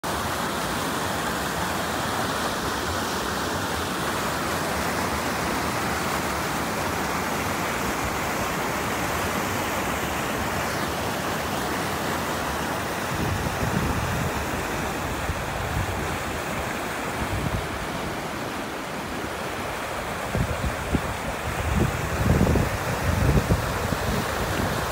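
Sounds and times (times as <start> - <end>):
water rushing over rocks: 0.0 - 24.9
wind buffeting microphone: 13.0 - 18.3, 20.1 - 24.9.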